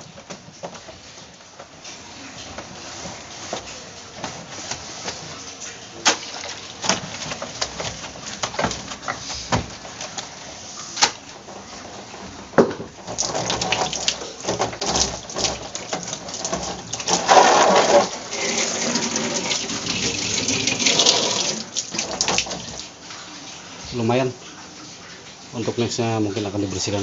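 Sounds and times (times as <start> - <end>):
hose water spraying on plastic: 0.0 - 27.0
plastic knocks: 12.6 - 16.7.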